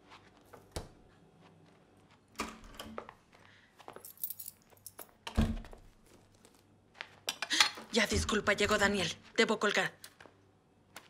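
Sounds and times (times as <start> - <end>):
keys jangling and clicking: 4.0 - 5.2.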